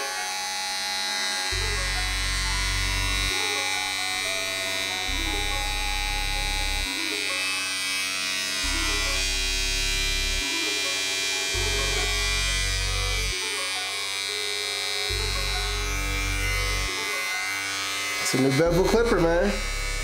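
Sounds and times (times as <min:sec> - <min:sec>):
electric clipper buzzing: 0:00.0 - 0:20.0
background music with bass: 0:01.5 - 0:06.9, 0:08.6 - 0:10.4, 0:11.5 - 0:13.4, 0:15.1 - 0:16.9.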